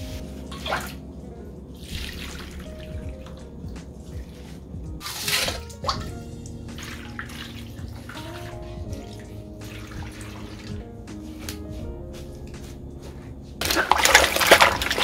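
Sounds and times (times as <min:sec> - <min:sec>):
background music: 0:00.0 - 0:15.0
water splashing and running: 0:01.8 - 0:03.4, 0:05.0 - 0:10.9, 0:13.6 - 0:15.0.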